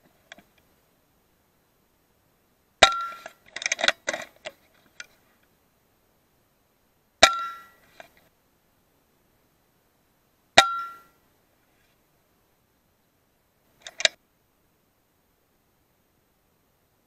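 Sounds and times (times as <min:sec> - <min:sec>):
clicks and clatter: 0:13.8 - 0:14.2.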